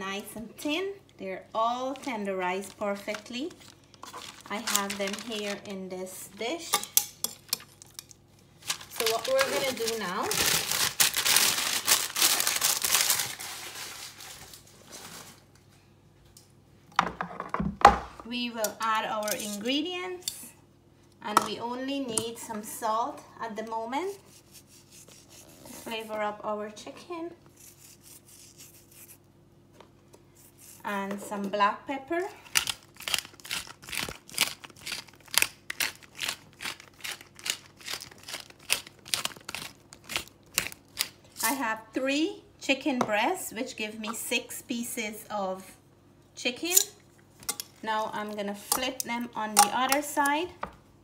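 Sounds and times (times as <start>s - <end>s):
pepper grinder crunching: 1.9s - 5.6s, 32.5s - 41.6s
thin sheet crinkling: 1.9s - 5.7s, 8.6s - 15.5s, 32.6s - 41.6s.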